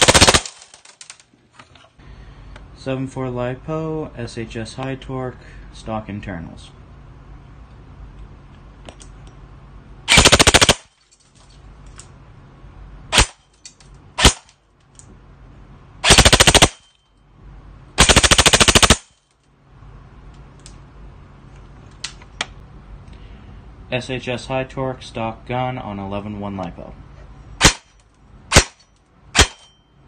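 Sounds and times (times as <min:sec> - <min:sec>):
airsoft gun firing: 0:00.0 - 0:00.9, 0:10.1 - 0:10.9, 0:14.2 - 0:14.4, 0:16.0 - 0:16.8, 0:18.0 - 0:19.1, 0:27.6 - 0:27.9, 0:28.5 - 0:29.7.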